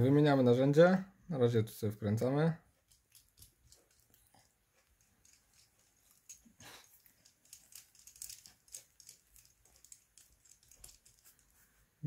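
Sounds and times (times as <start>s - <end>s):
small metal parts clicking: 2.8s - 11.6s.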